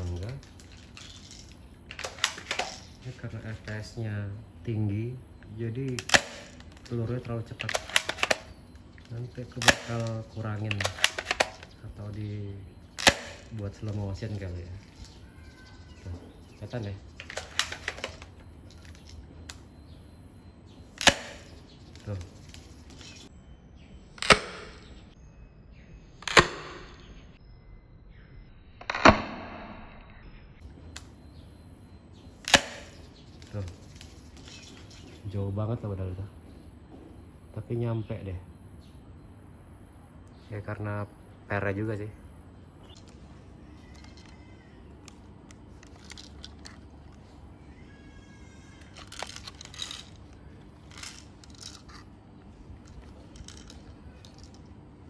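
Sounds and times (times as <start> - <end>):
toy rifle clinking and rattling: 0.0 - 3.8, 5.8 - 12.2, 12.9 - 16.0, 17.1 - 19.7, 43.0 - 47.4, 48.8 - 54.8
airsoft rifle shots: 1.9 - 2.8, 5.9 - 7.0, 7.6 - 8.7, 9.6 - 11.8, 12.9 - 14.0, 17.2 - 18.3, 21.0 - 21.6, 32.4 - 33.0.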